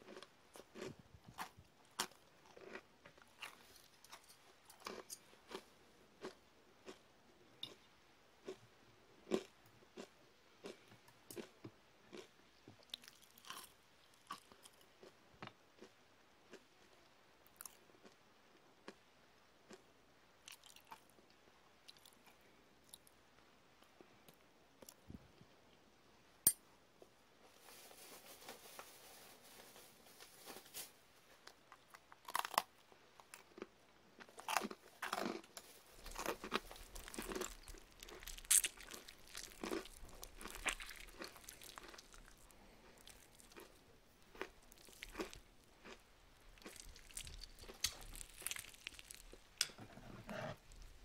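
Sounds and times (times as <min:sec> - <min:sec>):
crisp food crunching: 0:00.0 - 0:07.0, 0:09.2 - 0:15.2, 0:20.5 - 0:21.2, 0:30.4 - 0:49.7.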